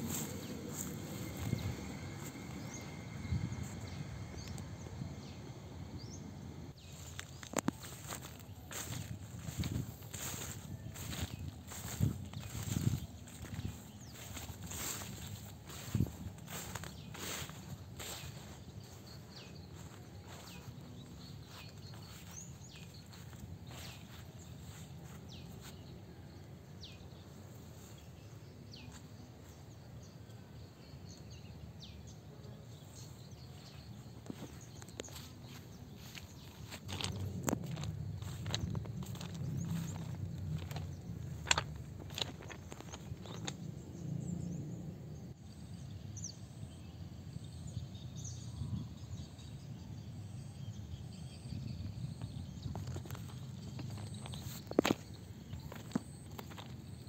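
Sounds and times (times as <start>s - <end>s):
light footsteps: 0.0s - 2.9s, 6.8s - 26.0s, 33.6s - 43.7s
low rumble: 0.0s - 7.4s, 36.4s - 45.3s
low outdoor rumble: 0.0s - 48.0s
faint bird chirps: 6.9s - 26.5s.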